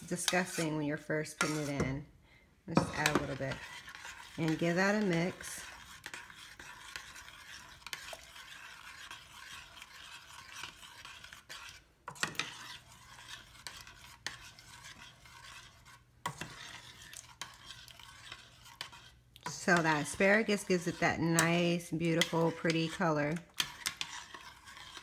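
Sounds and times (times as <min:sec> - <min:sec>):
spoon stirring thick soup: 0:00.0 - 0:25.0.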